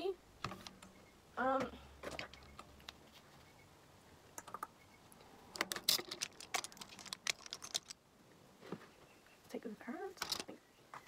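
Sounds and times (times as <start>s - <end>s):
makeup brushes and palette clicking: 5.6s - 8.0s.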